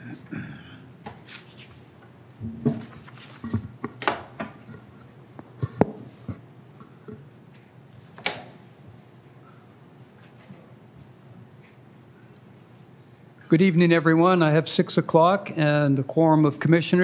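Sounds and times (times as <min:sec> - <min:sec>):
objects clicking and knocking on desk: 0:02.6 - 0:06.1.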